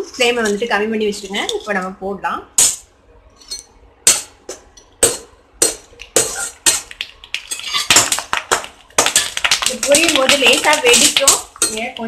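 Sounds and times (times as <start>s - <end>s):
food sizzling in hot oil: 6.2s - 12.0s.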